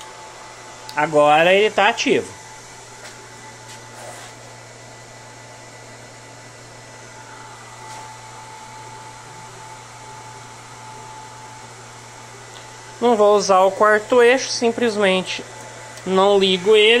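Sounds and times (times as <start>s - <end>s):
electrical hum and fan hiss: 0.0s - 17.0s
thin steady whine: 0.0s - 17.0s.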